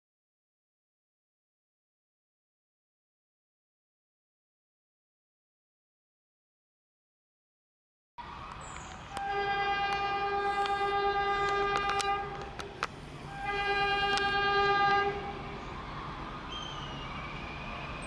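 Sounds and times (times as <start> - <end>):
diesel locomotive horn blasts: 9.1 - 12.6, 13.2 - 15.8.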